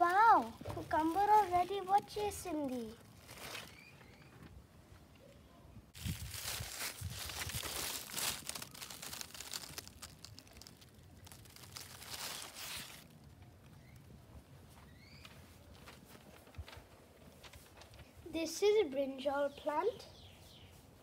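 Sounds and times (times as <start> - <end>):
leaves rustling and crackling: 0.0 - 4.2, 6.0 - 14.2.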